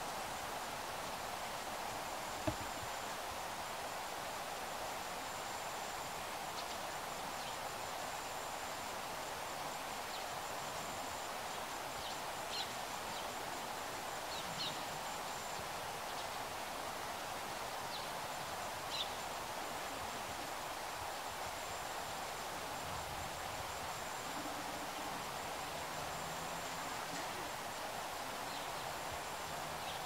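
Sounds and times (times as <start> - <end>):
outdoor background noise: 0.0 - 30.0.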